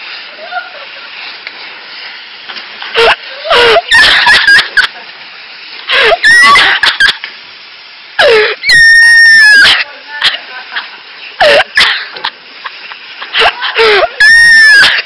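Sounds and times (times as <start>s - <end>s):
pressure washer spray hissing: 0.0s - 15.0s
shrieking voices: 2.9s - 4.9s, 5.9s - 7.1s, 8.2s - 10.4s, 13.3s - 15.0s.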